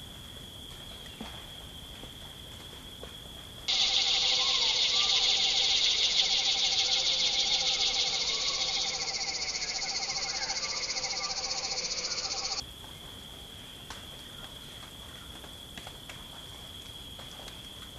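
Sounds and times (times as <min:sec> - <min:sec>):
frogs trilling: 0:03.7 - 0:12.6
insects buzzing in rapid pulses: 0:03.7 - 0:12.6.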